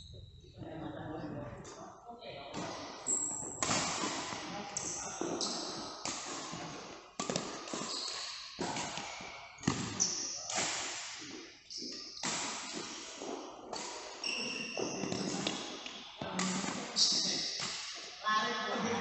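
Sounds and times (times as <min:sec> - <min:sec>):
rackets hitting shuttlecock: 0:02.5 - 0:18.0
shoes squeaking on court: 0:04.7 - 0:10.5, 0:11.7 - 0:18.2.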